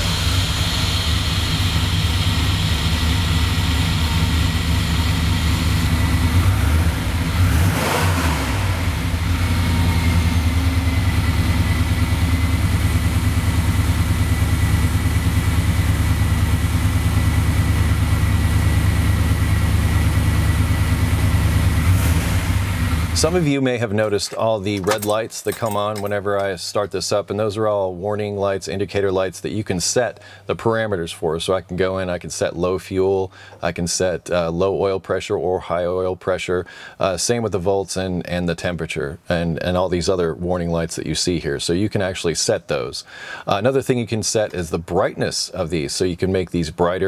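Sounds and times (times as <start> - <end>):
pickup engine idling: 0.0 - 26.6.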